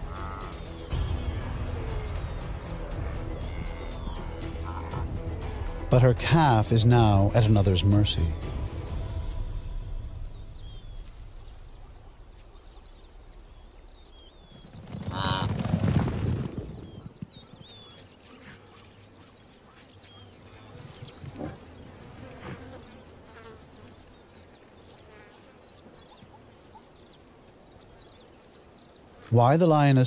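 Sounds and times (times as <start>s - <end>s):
rising animal call: 0.0s - 0.8s, 1.7s - 5.1s.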